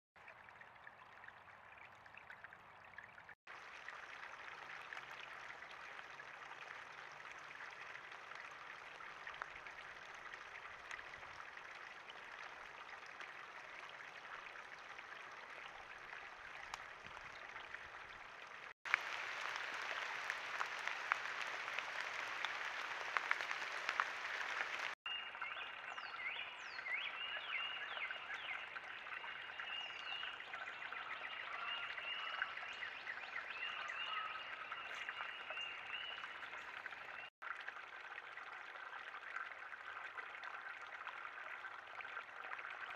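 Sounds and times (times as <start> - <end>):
chorus of distant calling frogs: 29.0 - 37.2.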